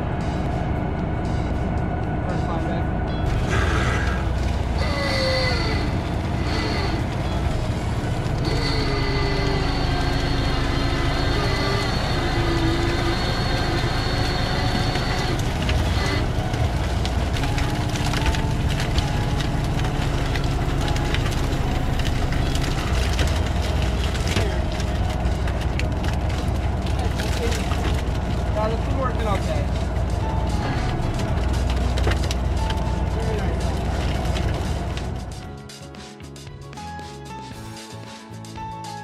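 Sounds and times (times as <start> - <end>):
hydraulic whine gliding in pitch: 0.0 - 16.8
engine and hydraulic gear running: 3.1 - 26.2
knocks and creaks of gear: 3.3 - 35.4.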